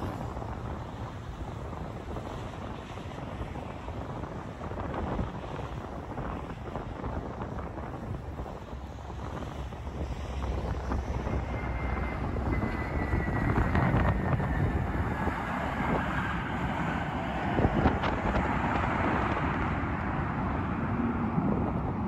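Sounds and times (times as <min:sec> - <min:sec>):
jet engine whine: 0:00.0 - 0:22.0
wind buffeting microphone: 0:00.0 - 0:22.0
jet engine roar: 0:08.4 - 0:22.0.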